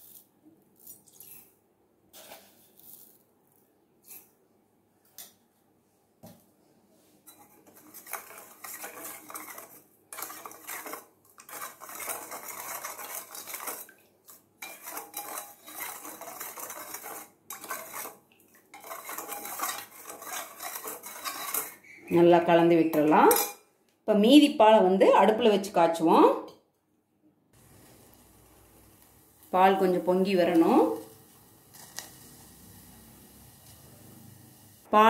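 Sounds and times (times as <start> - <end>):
spoon stirring in steel bowl: 7.3 - 22.3.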